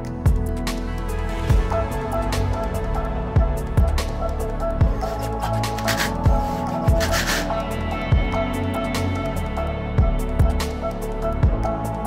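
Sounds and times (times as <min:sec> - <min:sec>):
electronic dance music: 0:05.0 - 0:07.5.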